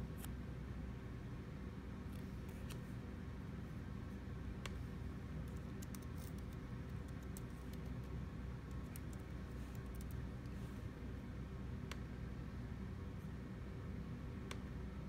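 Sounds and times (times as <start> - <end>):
low background hum: 0.0 - 15.0
laptop keys typing: 5.4 - 10.4.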